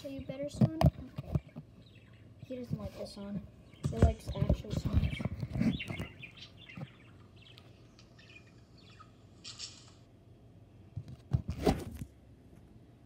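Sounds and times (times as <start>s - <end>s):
bird chirping: 0.0s - 10.0s.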